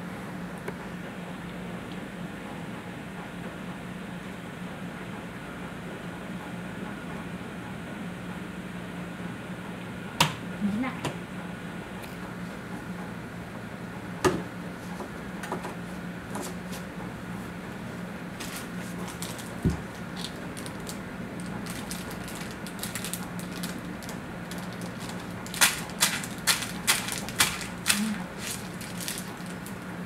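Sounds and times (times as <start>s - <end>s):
plastic wrapper crinkling: 18.4s - 30.0s.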